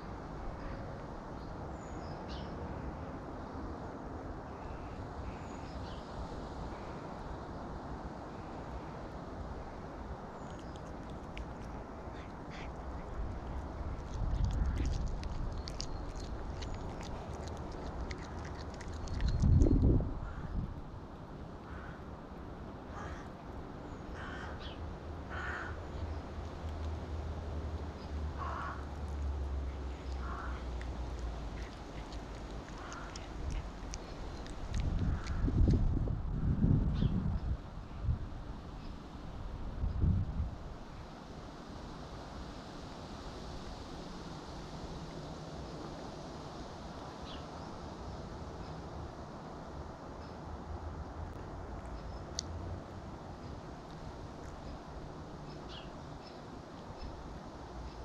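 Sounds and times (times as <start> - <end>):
low outdoor rumble: 0.0 - 58.0
crow cawing: 21.7 - 22.0, 22.9 - 23.3, 24.2 - 24.6, 25.3 - 25.8, 28.4 - 28.8, 30.2 - 30.6.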